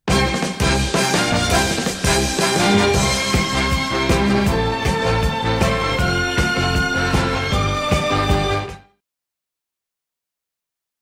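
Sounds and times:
pop band with drum beat: 0.1 - 8.6.

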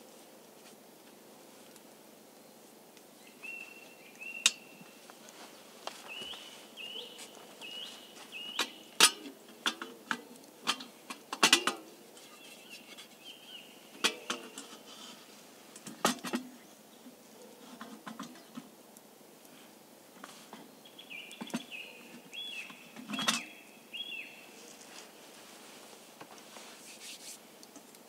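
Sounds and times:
bird calling: 3.2 - 9.0, 20.8 - 24.6.

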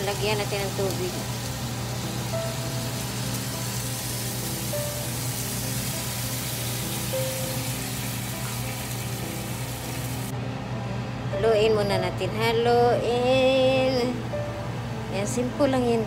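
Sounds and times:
frying pan sizzling: 0.0 - 10.4
faint background music: 0.0 - 16.0.

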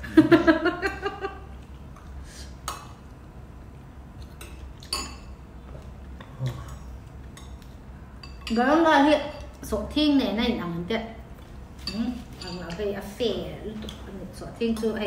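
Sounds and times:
spoons clinking against bowls: 4.3 - 5.4, 8.2 - 9.6, 11.8 - 13.0.

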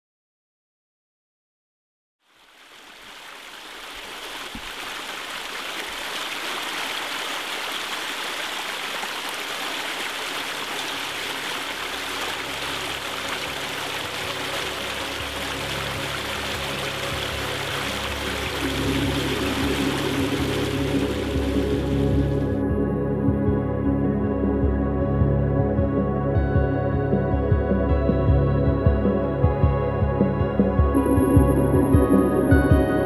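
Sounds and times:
stream flowing: 2.2 - 22.6
low sustained music tones: 11.6 - 33.0.

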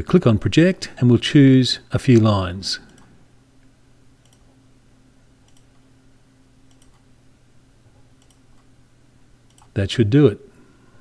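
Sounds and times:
low electrical hum: 0.0 - 11.0
computer mouse clicking: 4.2 - 4.5, 5.5 - 5.8, 6.7 - 7.0, 8.2 - 8.7, 9.5 - 9.8.

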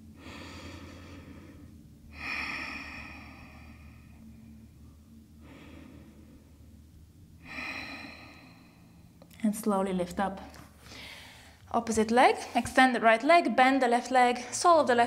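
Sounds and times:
woman breathing deeply: 0.0 - 9.2, 10.8 - 11.7
faint low hum: 0.0 - 15.0.

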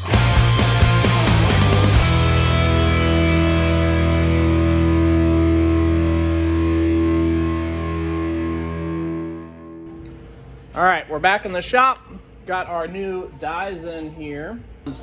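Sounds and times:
distorted electric guitar chord: 0.0 - 9.9.

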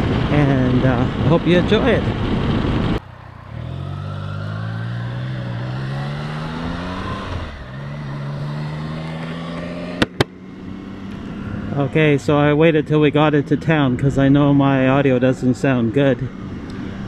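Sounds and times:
motorcycle engine pulling away: 3.1 - 11.9.

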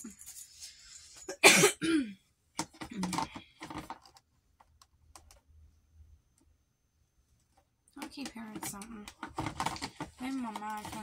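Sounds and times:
plastic cases clicking and rattling: 2.6 - 5.5, 7.9 - 11.0.

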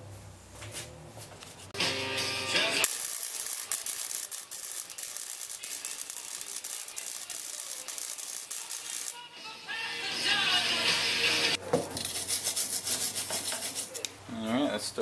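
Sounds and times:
welding arc crackling: 2.8 - 9.2.

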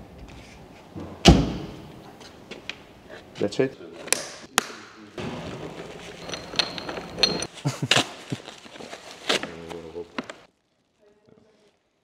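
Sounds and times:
handling clicks and knocks: 4.0 - 7.6
bubble wrap rustling and crinkling: 7.4 - 12.0.

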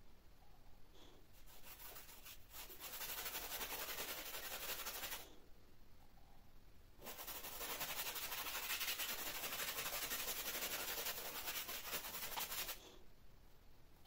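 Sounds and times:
paintbrush scrubbing canvas: 1.3 - 5.3, 7.0 - 12.9.

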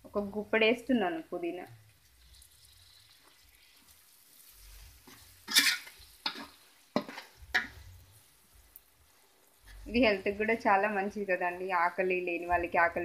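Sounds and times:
faint sizzle of frying: 0.0 - 13.0
steel spoon scraping metal pan: 4.6 - 7.8.

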